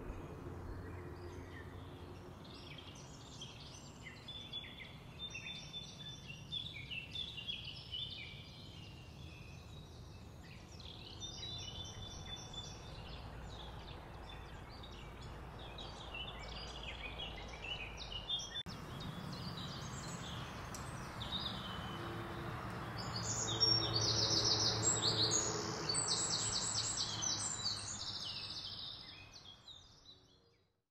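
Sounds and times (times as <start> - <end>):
low outdoor rumble: 0.0 - 3.2
small birds chirping: 0.0 - 30.6.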